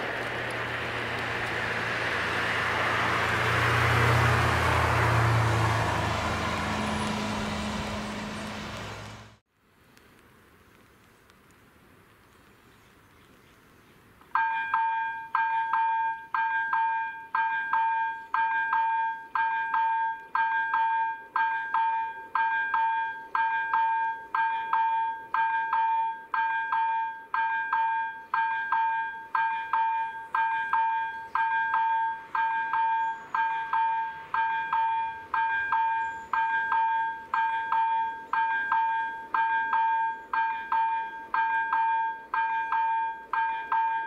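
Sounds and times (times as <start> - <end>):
level crossing warning bell: 14.4 - 44.0.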